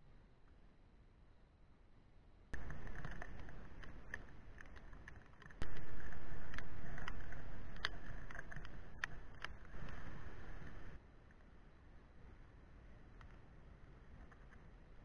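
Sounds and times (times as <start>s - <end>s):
wind noise: 2.5s - 15.0s
scattered clicks: 2.6s - 11.0s.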